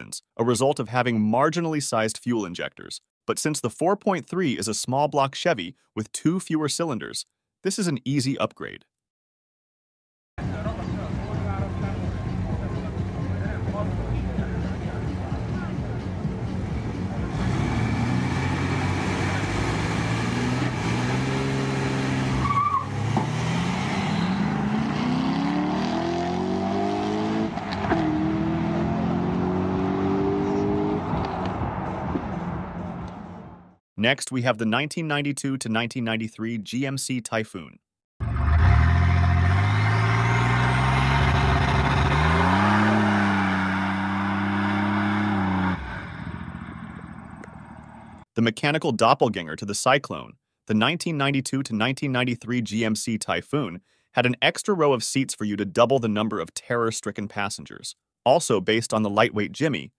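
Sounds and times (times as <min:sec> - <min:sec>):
car engines accelerating hard: 0:10.4 - 0:33.7, 0:38.2 - 0:48.2.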